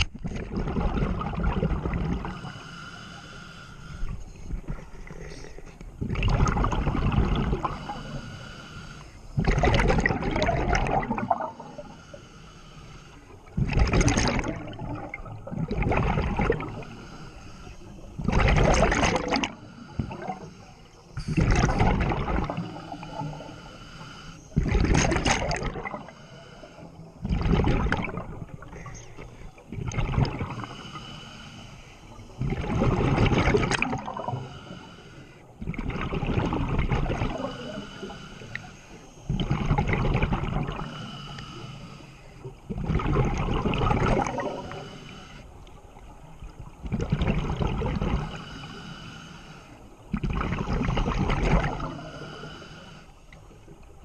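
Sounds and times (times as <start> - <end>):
diver breathing through regulator: 2.1 - 35.6, 36.5 - 39.6, 40.3 - 42.6, 44.0 - 45.6, 47.6 - 53.5
bubbling exhaust: 9.4 - 11.8.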